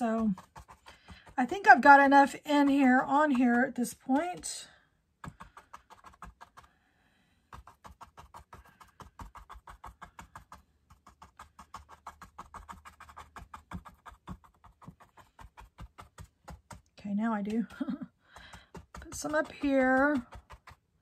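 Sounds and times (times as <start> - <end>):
paintbrush tapping on canvas: 0.1 - 1.6, 7.5 - 20.8.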